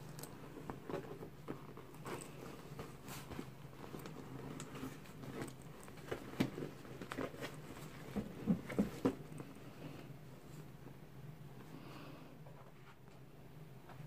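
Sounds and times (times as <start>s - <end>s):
handbag rustling: 0.0s - 9.4s.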